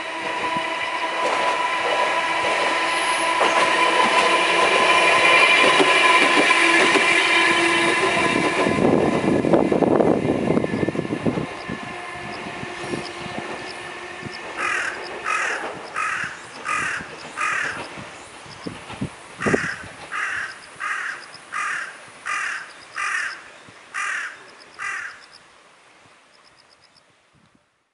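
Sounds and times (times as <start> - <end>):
crow cawing: 14.6 - 17.8, 19.4 - 25.3.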